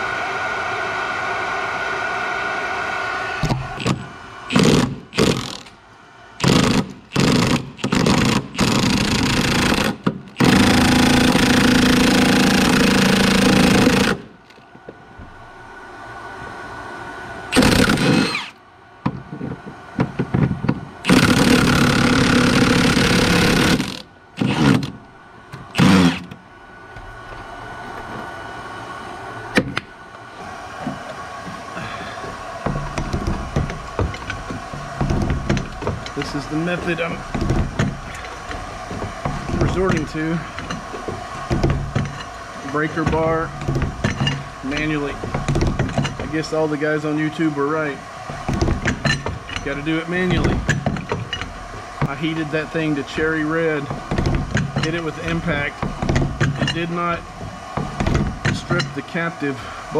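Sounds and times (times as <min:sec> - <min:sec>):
impact wrench hammering: 0:03.4 - 0:05.7, 0:06.4 - 0:14.3, 0:17.5 - 0:25.0, 0:25.6 - 0:26.4, 0:30.8 - 0:46.5, 0:48.3 - 0:52.2, 0:53.8 - 0:59.0.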